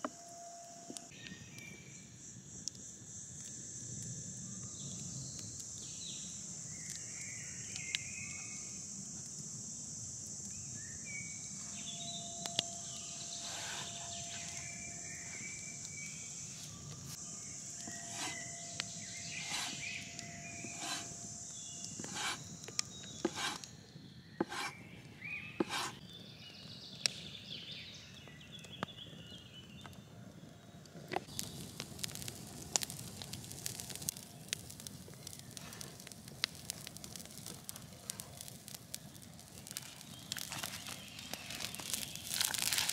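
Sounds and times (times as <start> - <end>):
insect buzz: 1.9 - 26.0
knife chopping on wooden board: 20.6 - 21.1, 23.2 - 23.6, 24.4 - 24.7, 25.6 - 26.0.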